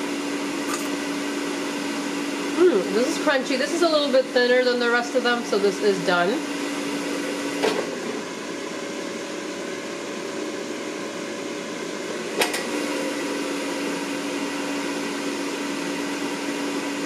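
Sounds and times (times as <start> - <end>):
air fryer fan humming: 0.0 - 17.0.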